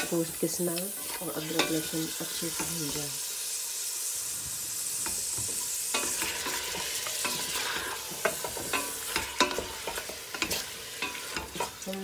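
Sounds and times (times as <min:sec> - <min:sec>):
meat sizzling in hot oil: 0:00.0 - 0:12.0
spatula scraping and knocking pot: 0:05.0 - 0:11.8.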